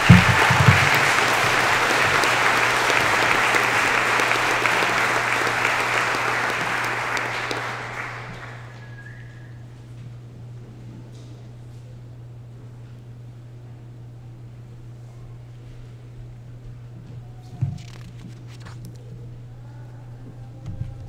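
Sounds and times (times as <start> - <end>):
low thumps: 0.0 - 2.2
audience applauding: 0.0 - 9.6
steady low hum: 0.0 - 21.0.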